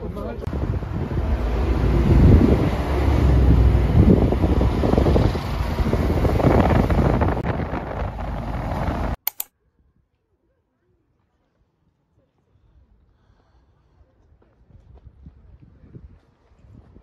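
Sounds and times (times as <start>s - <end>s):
wind buffeting microphone: 0.0s - 9.2s, 14.6s - 17.0s
short clicks: 9.2s - 9.5s.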